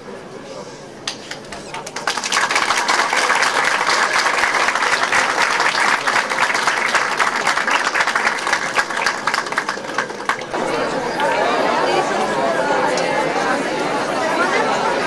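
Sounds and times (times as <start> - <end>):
crowd applauding: 1.2 - 15.0.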